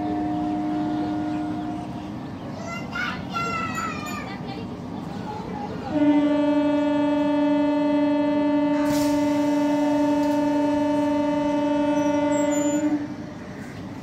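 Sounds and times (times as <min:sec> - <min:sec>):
train horn blast: 0:00.0 - 0:02.2, 0:05.9 - 0:13.3.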